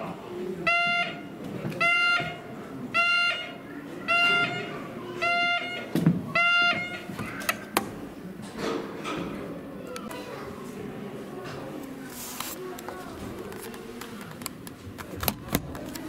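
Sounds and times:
buzzy electronic alarm beeps: 0:03.0 - 0:07.1.

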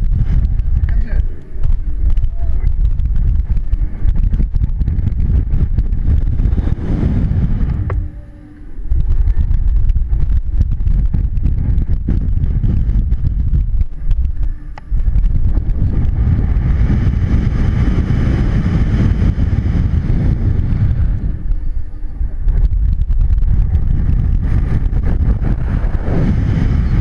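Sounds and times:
wind buffeting microphone: 0:00.0 - 0:27.0.

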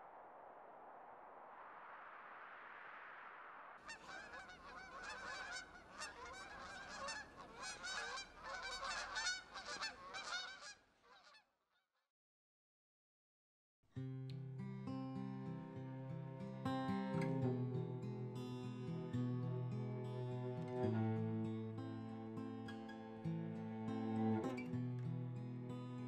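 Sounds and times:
geese honking: 0:03.9 - 0:11.4.

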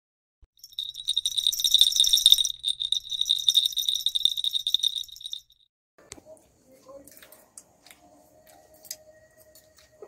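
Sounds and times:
small bells shimmering: 0:00.6 - 0:05.6.

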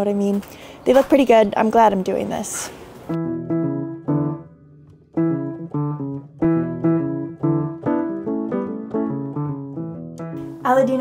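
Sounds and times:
background music of plucked notes: 0:03.1 - 0:11.0.

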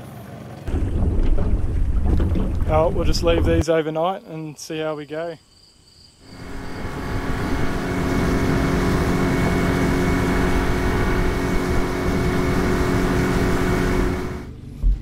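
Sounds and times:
outboard motor running: 0:06.3 - 0:14.5.

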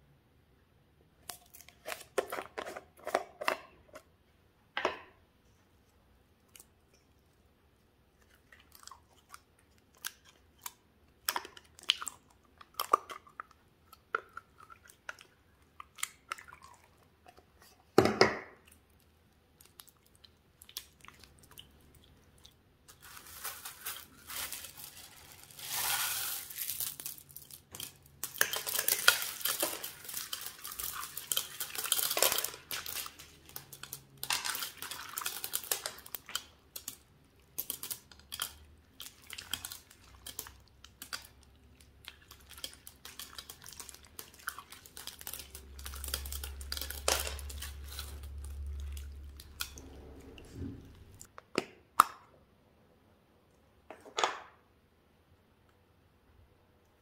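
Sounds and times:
candy shells clicking and clattering: 0:19.6 - 0:49.8
sticky slime crackling and tearing: 0:22.9 - 0:49.8.

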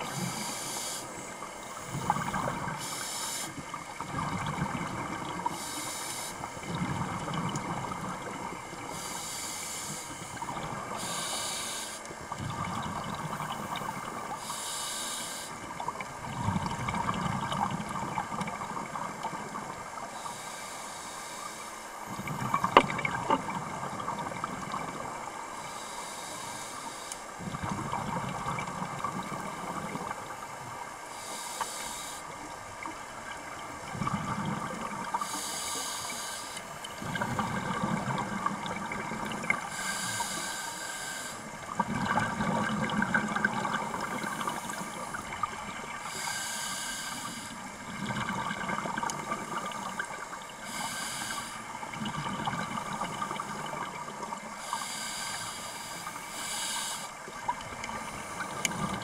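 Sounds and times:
regulator breathing hiss: 0:00.0 - 0:03.7, 0:05.5 - 0:06.6, 0:08.8 - 0:12.2, 0:13.3 - 0:15.7, 0:20.1 - 0:22.0, 0:25.6 - 0:27.4, 0:31.1 - 0:32.4, 0:35.2 - 0:37.0, 0:39.6 - 0:41.6, 0:43.9 - 0:47.8, 0:49.2 - 0:51.8, 0:54.5 - 0:57.3
exhaled bubbles rumbling: 0:01.4 - 0:02.8, 0:03.6 - 0:05.6, 0:06.4 - 0:09.0, 0:12.2 - 0:14.4, 0:15.7 - 0:20.0, 0:22.1 - 0:25.4, 0:27.4 - 0:30.8, 0:32.7 - 0:35.2, 0:36.9 - 0:39.7, 0:41.6 - 0:46.1, 0:47.8 - 0:50.5, 0:51.8 - 0:54.5, 0:57.2 - 0:59.0.

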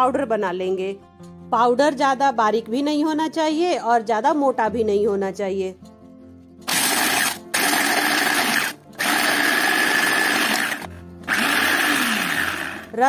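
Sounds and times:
electric chopper grinding: 0:06.6 - 0:13.0.

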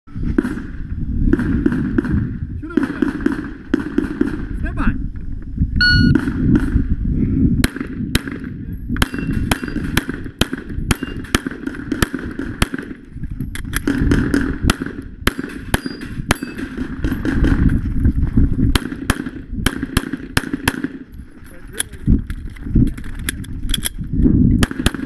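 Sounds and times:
pistol shots: 0:07.6 - 0:13.0, 0:13.8 - 0:17.7, 0:18.7 - 0:21.1, 0:24.6 - 0:25.0.

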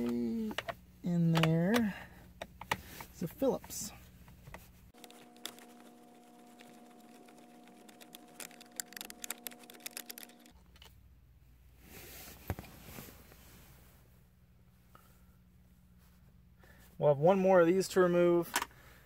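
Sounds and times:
screwdriver clicking and ticking: 0:07.9 - 0:10.5.

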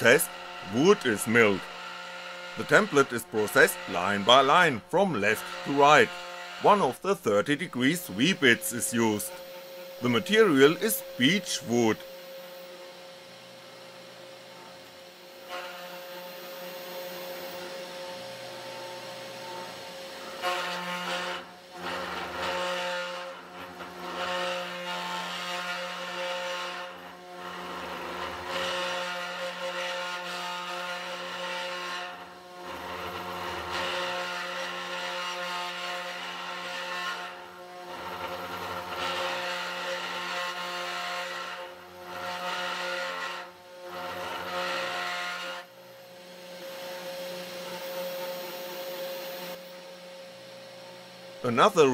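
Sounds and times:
stepper motors whining: 0:00.0 - 0:13.5
router spindle motor cutting wood: 0:00.0 - 0:51.9.

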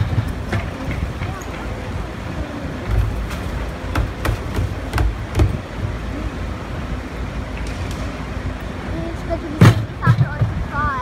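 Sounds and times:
truck engine running: 0:00.0 - 0:11.0
bin banging against hopper: 0:02.9 - 0:05.6.

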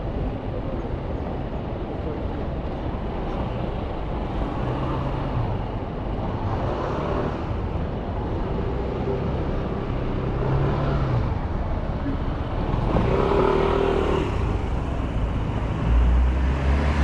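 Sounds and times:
city background noise: 0:00.0 - 0:17.0
vehicles passing: 0:00.0 - 0:17.0.

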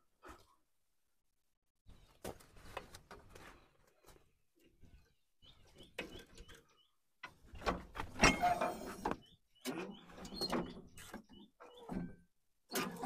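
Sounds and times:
bird chirping: 0:04.9 - 0:07.1, 0:08.8 - 0:12.1
wire cable scraping against metal: 0:08.2 - 0:11.1.

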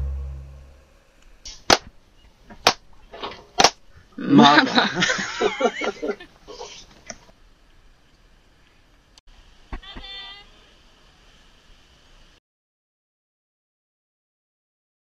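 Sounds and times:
sharp smacks: 0:01.5 - 0:01.9, 0:03.6 - 0:03.8.

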